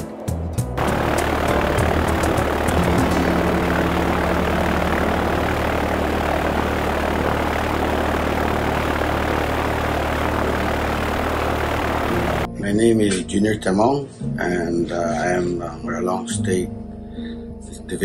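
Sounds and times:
propeller plane engine from cabin: 0:00.8 - 0:12.5.

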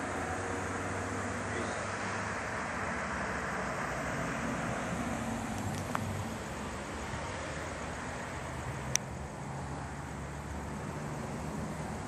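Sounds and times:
car driving away: 0:00.0 - 0:12.0
distant traffic hum: 0:00.0 - 0:12.0.

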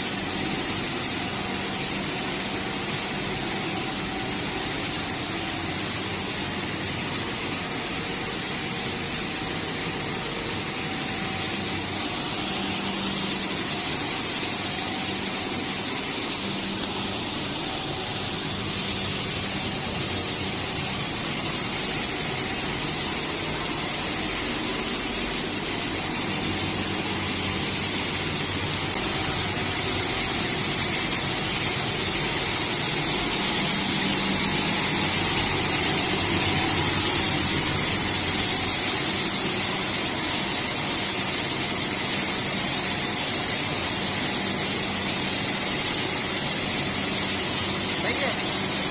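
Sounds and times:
machinery humming: 0:00.0 - 0:41.6
strong hiss: 0:00.0 - 0:48.9.

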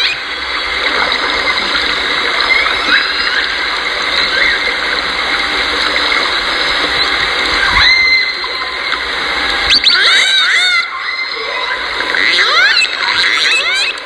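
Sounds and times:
killer whales calling: 0:09.7 - 0:14.0.

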